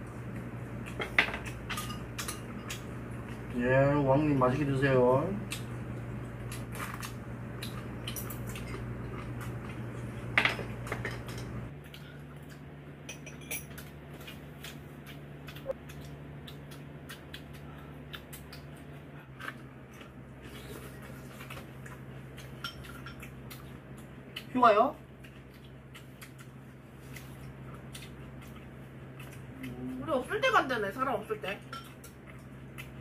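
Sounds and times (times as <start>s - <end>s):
steady low hum: 0.0s - 33.0s
utensils clinking against dishes: 0.9s - 2.9s, 13.1s - 13.9s, 22.6s - 23.3s, 31.5s - 32.2s.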